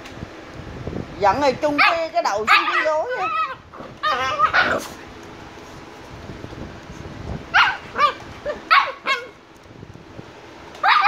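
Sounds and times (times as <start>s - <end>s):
high-pitched puppy barks: 1.8s - 4.8s, 7.5s - 9.4s, 10.8s - 11.0s.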